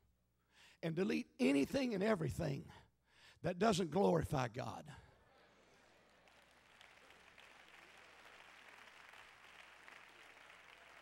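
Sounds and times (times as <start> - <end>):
faint applause: 5.8 - 11.0.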